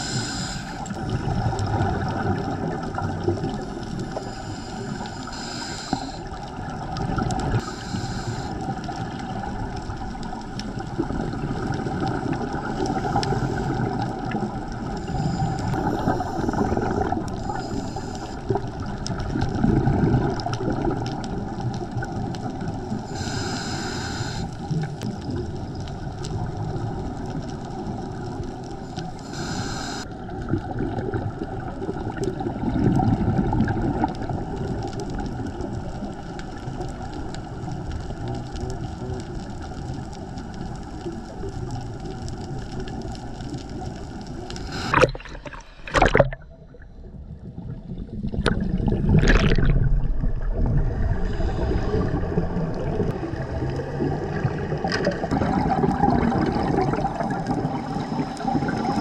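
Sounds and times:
regulator inhale hiss: 0.0 - 1.0, 3.5 - 6.5, 7.6 - 9.2, 12.8 - 14.2, 14.8 - 18.8, 22.9 - 25.0, 28.7 - 30.2, 44.4 - 46.0, 51.2 - 52.2
exhaled air bubbling underwater: 0.0 - 59.0.

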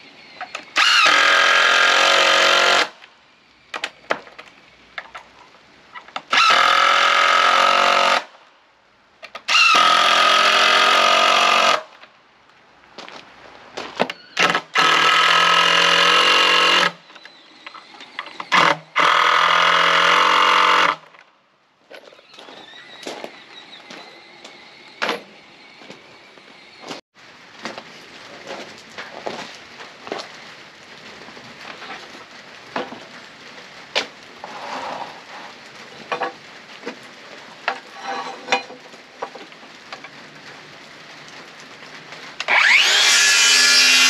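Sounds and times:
electric power saw cutting wood: 0.8 - 2.9, 6.3 - 8.3, 9.5 - 11.9, 14.4 - 17.0, 18.5 - 21.0, 42.4 - 44.0.

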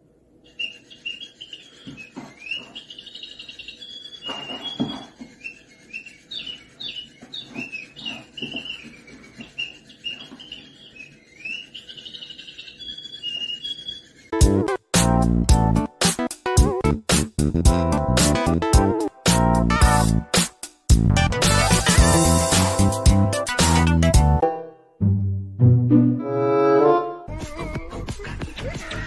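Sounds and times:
small bird chirping: 0.4 - 14.4.

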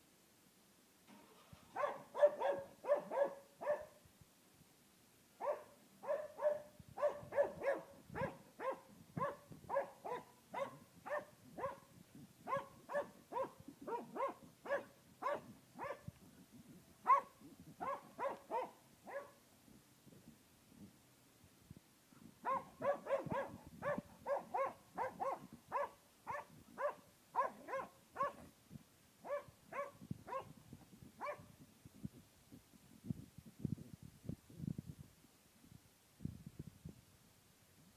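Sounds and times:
dog barking: 1.8 - 4.0, 5.4 - 11.9, 12.5 - 16.1, 17.0 - 19.4, 22.4 - 28.4, 29.2 - 30.5, 31.2 - 31.5.

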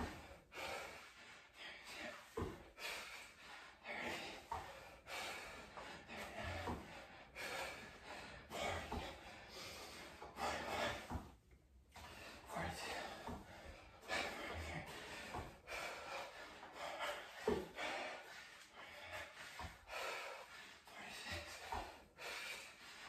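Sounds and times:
man breathing hard: 0.0 - 23.0
bare feet thudding on mat: 2.2 - 2.9, 5.8 - 16.2, 17.1 - 19.9.

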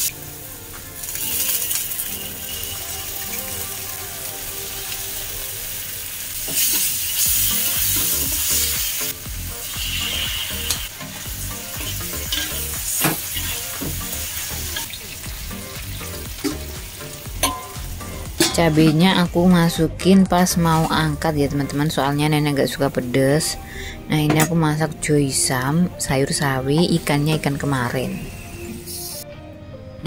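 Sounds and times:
food sizzling in oil: 0.0 - 19.3
metal spatula scraping wok: 9.7 - 10.9, 11.7 - 14.0.

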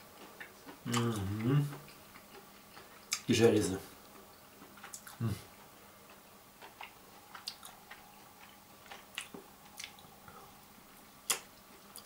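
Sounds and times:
wet chewing and mouth clicks: 0.2 - 3.3, 4.0 - 5.2, 6.1 - 10.2, 11.2 - 12.0.

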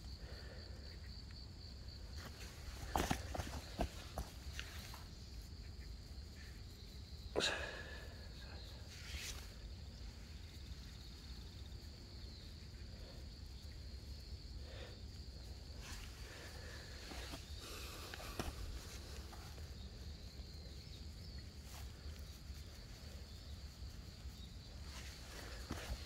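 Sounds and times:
high insect trill: 0.0 - 26.0
scuffs and rustles on dry soil: 2.0 - 5.6, 8.8 - 12.5, 15.6 - 26.0.

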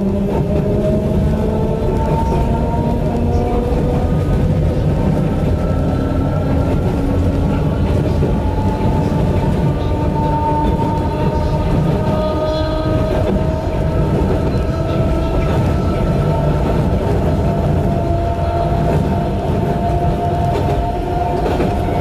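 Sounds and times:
train wheels rumbling on rail: 0.0 - 22.0.

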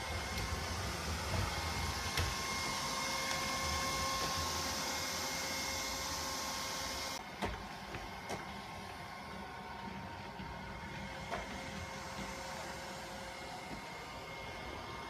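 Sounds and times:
robot vacuum whining and rushing: 0.0 - 7.2.

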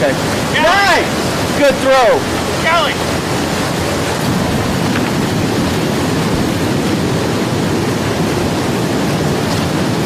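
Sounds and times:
river rushing: 0.0 - 10.0.

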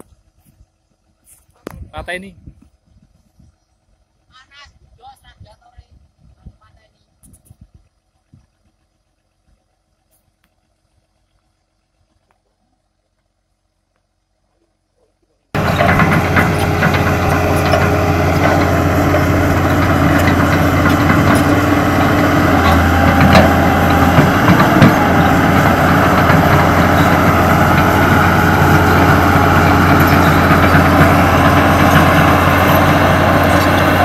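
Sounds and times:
excavator diesel engine humming: 15.5 - 34.0.

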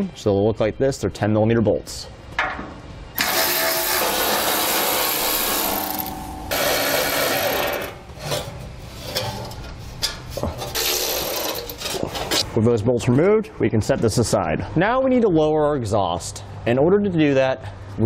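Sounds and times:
power ratchet whirring: 3.2 - 8.1, 10.8 - 11.8.

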